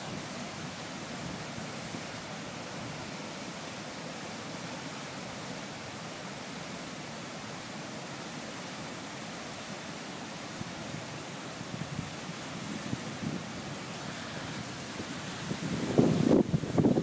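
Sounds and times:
rushing turbulent water: 0:00.0 - 0:17.0.

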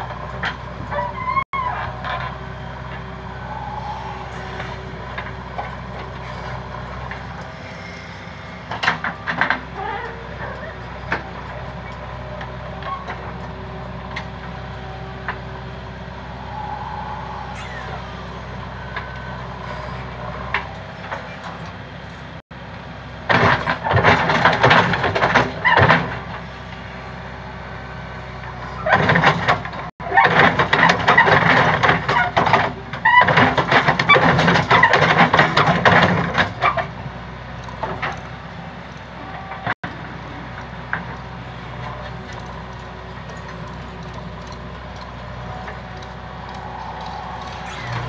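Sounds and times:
diesel engine running: 0:00.0 - 0:48.0
loud rough crackling noise: 0:01.7 - 0:22.4, 0:39.5 - 0:48.0.

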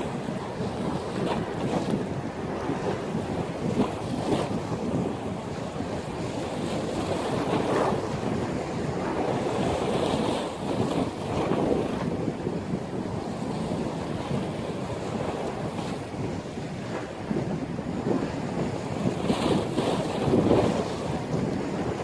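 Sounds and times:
sea waves breaking: 0:00.0 - 0:22.0
wind buffeting microphone: 0:00.0 - 0:22.0.

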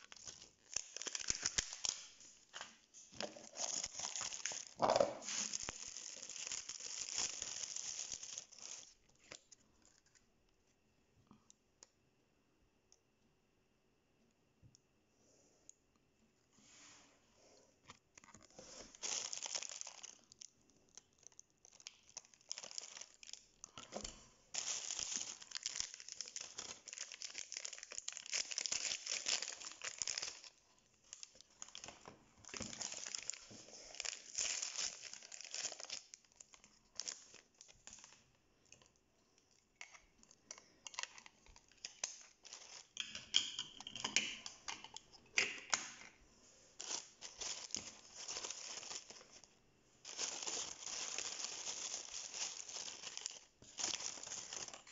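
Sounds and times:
wrapper crinkling and tearing: 0:00.0 - 0:10.2, 0:18.2 - 0:39.0, 0:39.8 - 0:43.0, 0:46.8 - 0:54.9.

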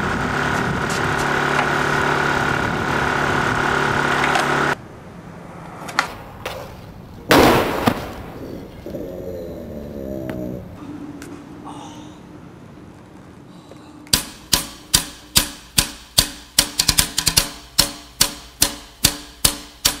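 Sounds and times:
skateboard and rider slamming pavement: 0:05.3 - 0:08.4
skateboard clacks: 0:05.6 - 0:06.8.

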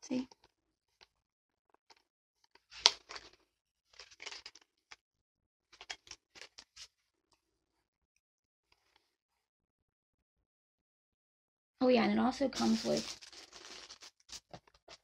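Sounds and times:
plastic bottle clicks and rustles: 0:05.8 - 0:06.8, 0:12.6 - 0:15.0.

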